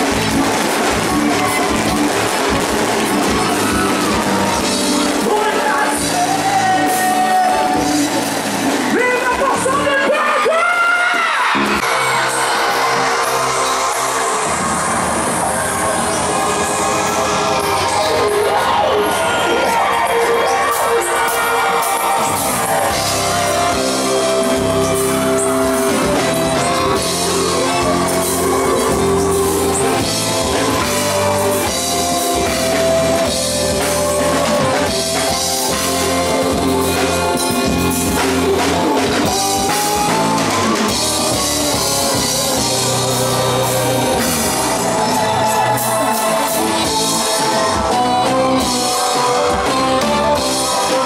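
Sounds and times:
electric bass: 0.0s - 9.0s, 22.2s - 51.0s
drum kit beat: 0.0s - 9.8s, 21.2s - 51.0s
keyboards: 0.0s - 51.0s.

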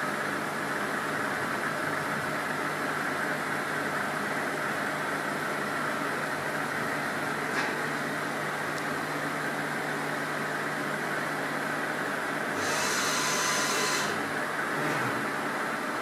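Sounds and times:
milling machine humming: 12.2s - 14.4s.

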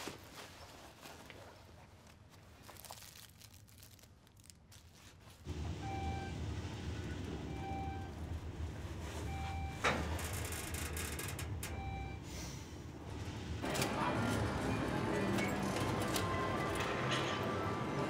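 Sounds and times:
elevator humming: 5.5s - 18.0s.

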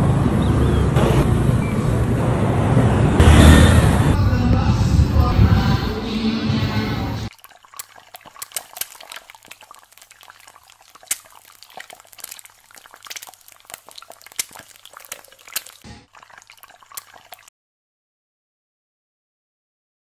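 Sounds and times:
eggs sizzling in hot oil: 7.3s - 17.5s.

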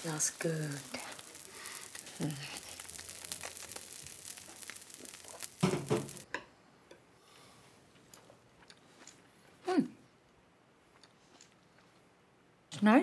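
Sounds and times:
soft crackling and rustling: 0.0s - 6.2s.

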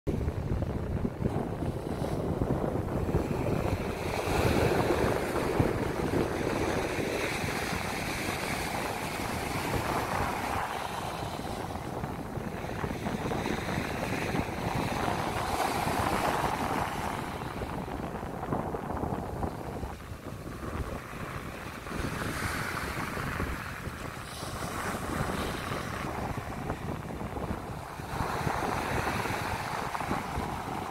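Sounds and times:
small waves breaking on beach: 0.1s - 30.9s
wind rumbling on microphone: 0.1s - 30.9s.

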